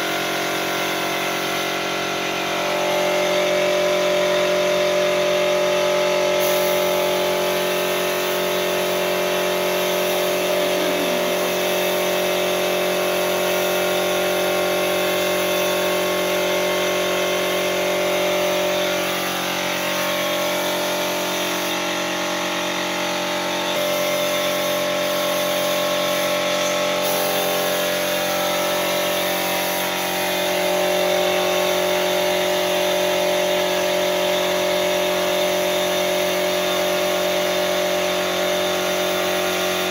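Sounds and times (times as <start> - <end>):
air compressor running: 0.0 - 39.9
spray gun hissing: 0.1 - 1.8, 6.2 - 39.9.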